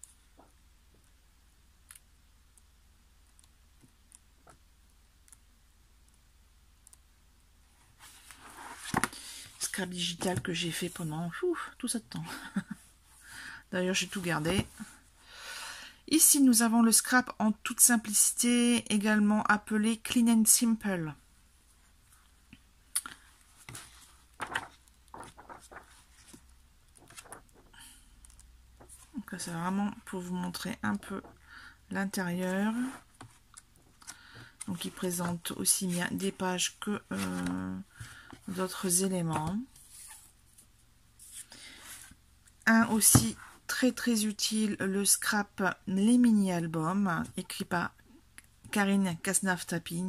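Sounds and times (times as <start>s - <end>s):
book pages flicking and rustling: 8.0s - 11.1s, 23.6s - 27.8s
book pages turning: 8.0s - 11.1s, 23.5s - 29.2s, 32.4s - 42.2s.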